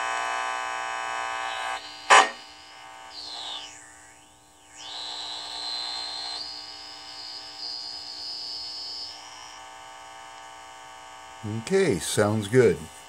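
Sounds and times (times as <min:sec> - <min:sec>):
steady mains hum: 0:00.0 - 0:13.0
high whistle sweeping in pitch: 0:01.4 - 0:02.5, 0:03.1 - 0:09.2.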